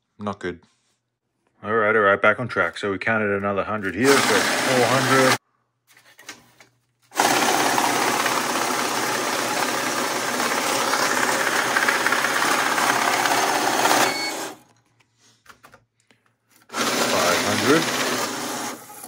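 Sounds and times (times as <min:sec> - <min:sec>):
currency counter whirring: 0:03.8 - 0:05.4, 0:07.1 - 0:14.6, 0:16.6 - 0:19.0
short beep: 0:14.0 - 0:14.4.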